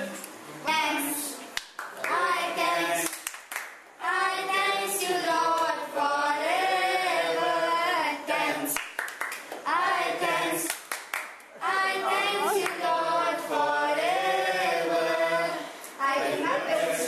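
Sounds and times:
hand claps: 0:01.6 - 0:02.2, 0:03.0 - 0:03.8, 0:08.7 - 0:09.6, 0:10.6 - 0:11.5
group singing unaccompanied: 0:02.0 - 0:08.9, 0:09.6 - 0:17.0.

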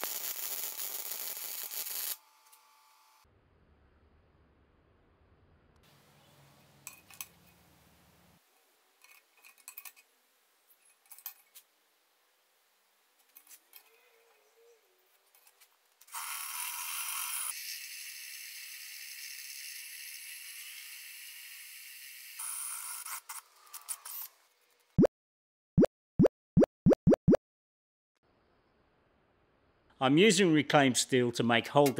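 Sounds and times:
rising plop sound effects: 0:25.8 - 0:27.4.

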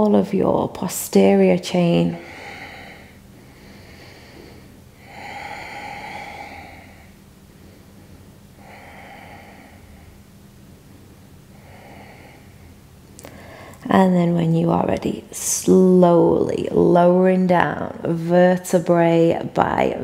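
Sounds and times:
woman breathing slowly: 0:02.0 - 0:10.4, 0:11.4 - 0:13.8.

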